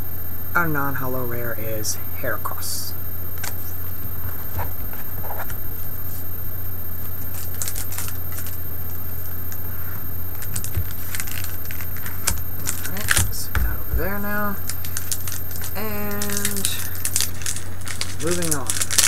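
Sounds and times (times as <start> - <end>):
steady low hum: 0.0 - 19.0
trading cards clicking and rustling: 7.2 - 8.6, 10.4 - 19.0.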